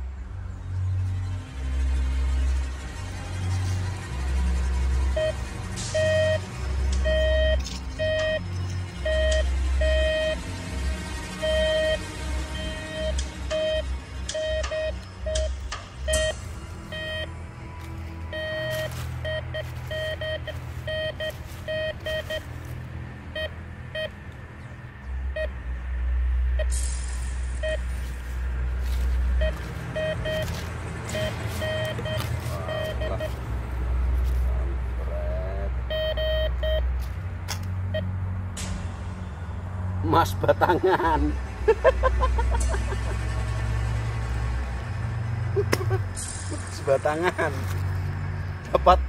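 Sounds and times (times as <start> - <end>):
background music with heavy bass: 0.0 - 49.0
metal detector beeping: 6.0 - 6.4, 7.0 - 8.4, 9.0 - 10.4, 11.4 - 12.0, 12.6 - 17.3, 18.3 - 22.5, 29.4 - 33.4, 35.9 - 36.8.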